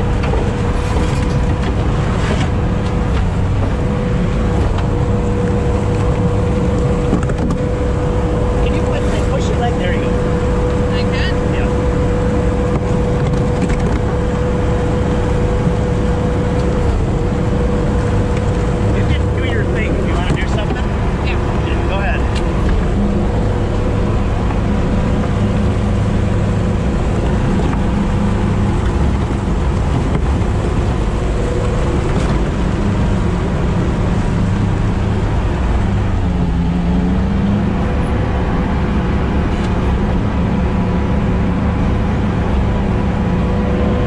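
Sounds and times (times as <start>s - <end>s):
diesel engine running: 0.0s - 44.0s.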